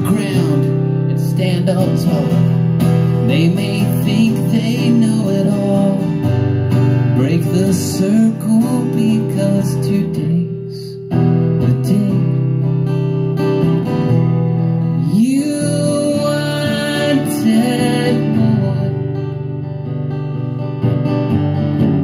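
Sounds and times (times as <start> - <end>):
man singing: 0.0 - 6.4, 7.0 - 12.8, 14.8 - 19.5
acoustic guitar strumming: 0.0 - 22.0.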